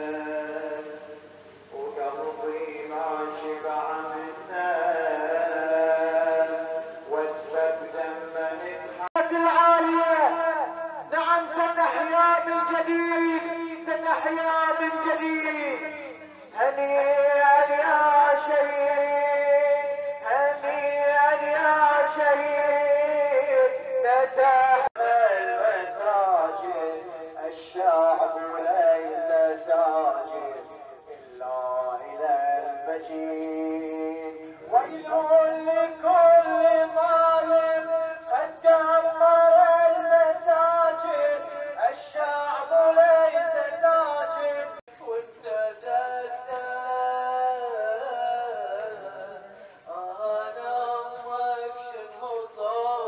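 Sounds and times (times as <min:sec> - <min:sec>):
man singing a slow chant: 0:00.0 - 0:53.0.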